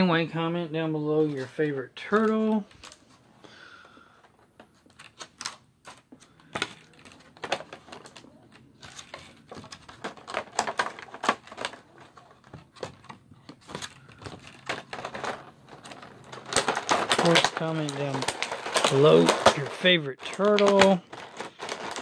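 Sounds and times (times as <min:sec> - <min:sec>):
plastic packaging crinkling: 0:04.8 - 0:22.0.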